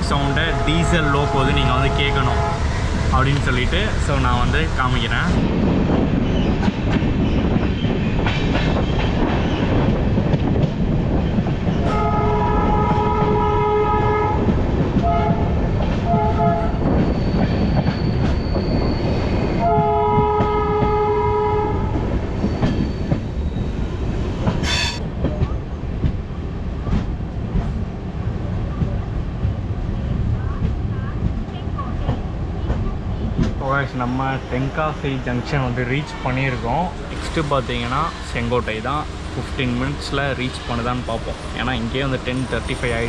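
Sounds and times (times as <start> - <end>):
locomotive engine and wheel rumble: 0.0 - 43.0
locomotive horn blasts: 0.2 - 2.7, 11.9 - 16.8, 19.6 - 21.9.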